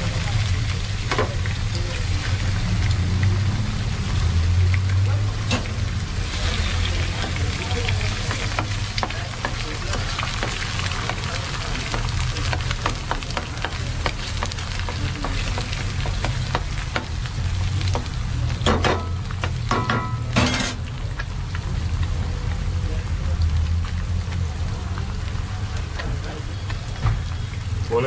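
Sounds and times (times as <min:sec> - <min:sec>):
eggs sizzling in oil: 0:00.0 - 0:28.0.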